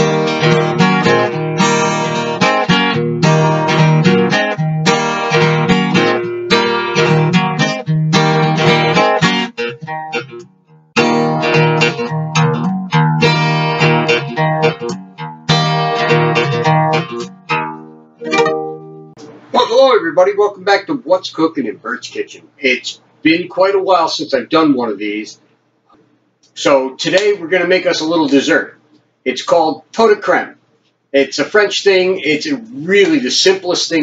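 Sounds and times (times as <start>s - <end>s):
acoustic guitar music: 0.0s - 21.2s.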